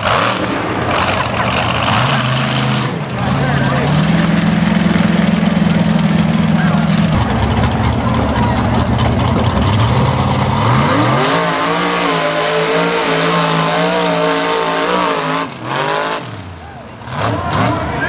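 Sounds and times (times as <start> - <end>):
truck engine revving: 0.0 - 18.0.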